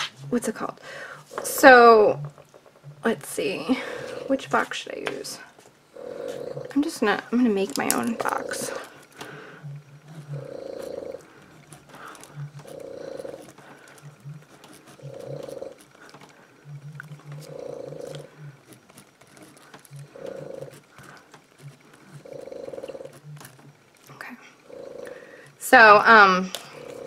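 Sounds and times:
pet breathing noisily: 0:03.6 - 0:07.2, 0:08.0 - 0:23.2, 0:24.4 - 0:25.6, 0:26.4 - 0:27.0
pen scratching on paper: 0:09.9 - 0:23.6.

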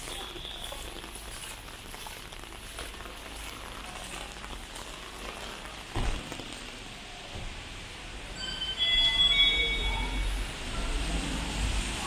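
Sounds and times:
heavy rain on pavement: 0:00.0 - 0:12.0.

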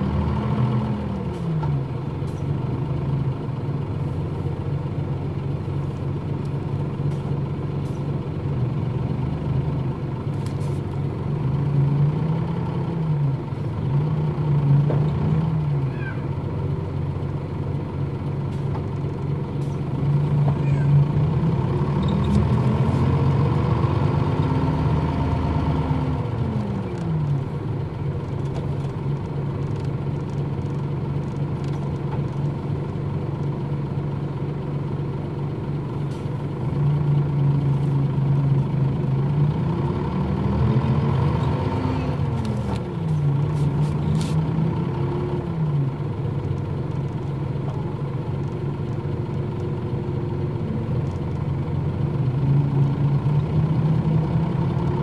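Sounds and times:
engine revving through gears: 0:00.0 - 0:04.4, 0:06.4 - 0:34.2, 0:35.5 - 0:55.0
bus diesel engine running: 0:00.0 - 0:55.0.

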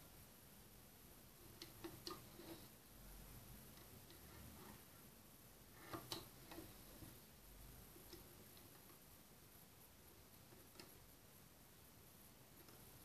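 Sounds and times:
faint clicks of knitting loom: 0:01.4 - 0:02.8, 0:03.7 - 0:05.0, 0:05.7 - 0:09.1, 0:10.1 - 0:11.2, 0:12.4 - 0:13.0.

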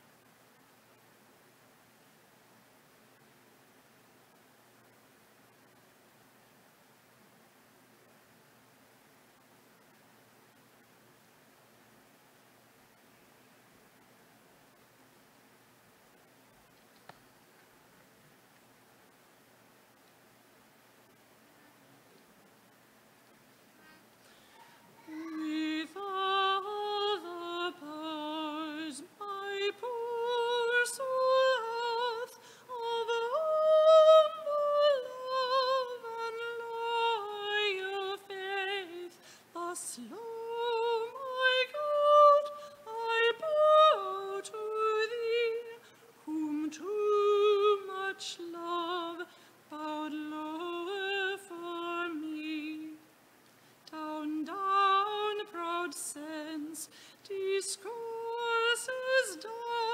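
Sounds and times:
woman singing a slow hymn: 0:24.4 - 0:53.1, 0:53.8 - 0:59.9.

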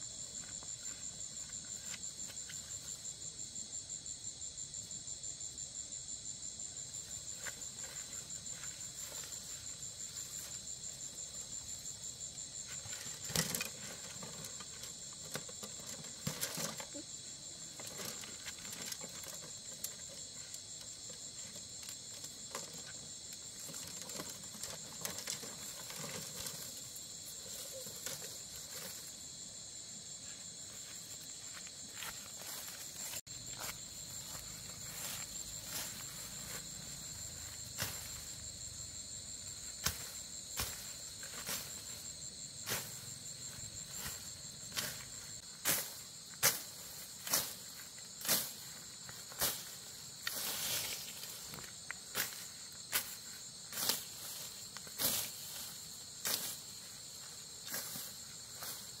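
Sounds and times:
night insects trilling: 0:00.0 - 0:59.0
grass rustling: 0:06.9 - 0:59.0
footsteps: 0:07.1 - 0:17.0, 0:30.0 - 0:38.7, 0:39.5 - 0:59.0.

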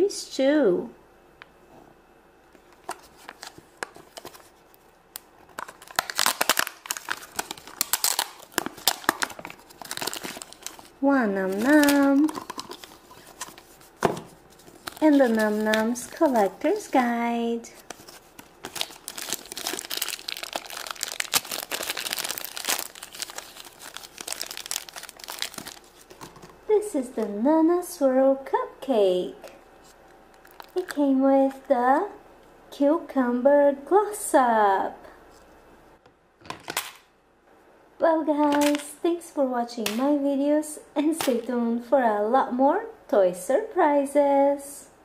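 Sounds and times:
lid peeling crinkling and tearing: 0:02.6 - 0:04.5, 0:05.1 - 0:16.9, 0:17.8 - 0:26.5, 0:29.9 - 0:30.8.

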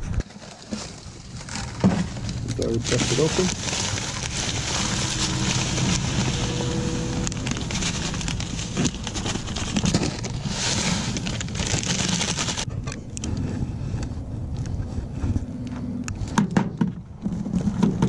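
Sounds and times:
foil packets crinkling: 0:00.2 - 0:12.7
wind rumbling on microphone: 0:01.0 - 0:18.0.

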